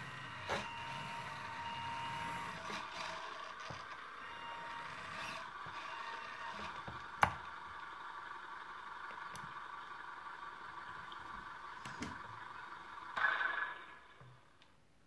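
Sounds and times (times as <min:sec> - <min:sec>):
toy car moving on wooden floor: 0:00.0 - 0:07.1
faint steady hum: 0:00.0 - 0:15.0.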